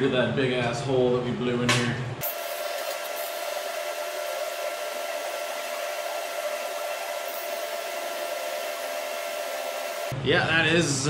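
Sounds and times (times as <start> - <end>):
welding arc hissing: 2.2 - 10.1.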